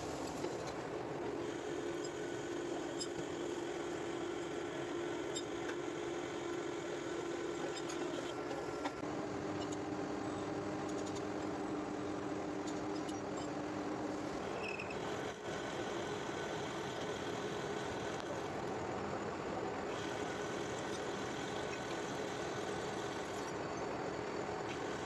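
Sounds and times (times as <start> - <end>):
metal lathe humming and whining: 0.7 - 25.0.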